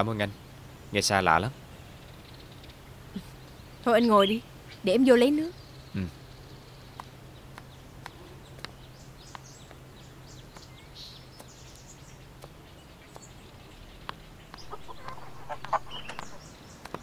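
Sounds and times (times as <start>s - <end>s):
low steady hum: 0.0s - 17.0s
faint bird chirps: 0.2s - 17.0s.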